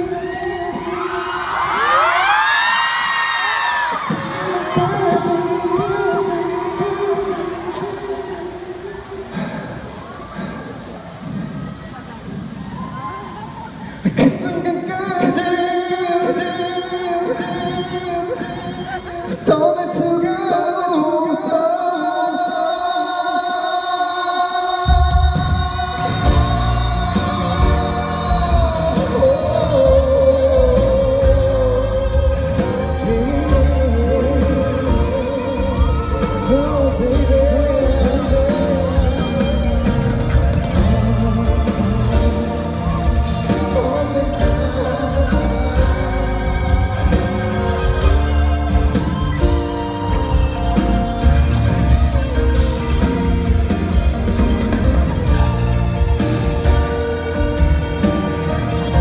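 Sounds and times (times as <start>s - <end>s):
person singing: 3.7s - 11.0s, 13.3s - 59.0s
heavy drum and bass beat: 24.9s - 59.0s.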